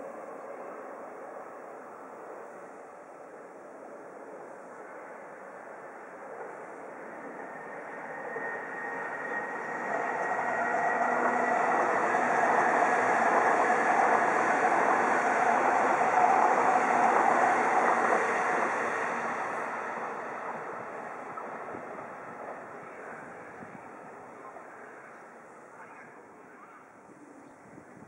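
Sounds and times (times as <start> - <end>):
electric train rumbling on rails: 0.0 - 28.0.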